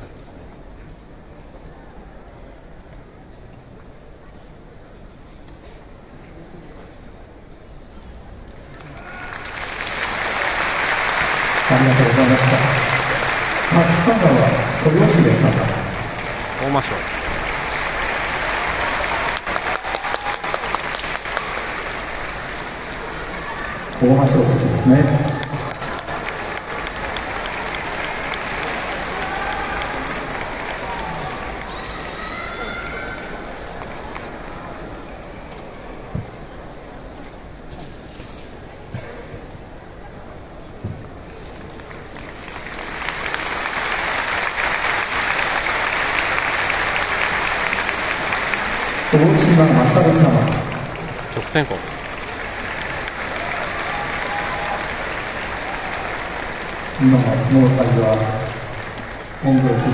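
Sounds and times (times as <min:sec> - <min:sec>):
audience applauding: 0:08.6 - 0:35.4, 0:41.7 - 0:59.9.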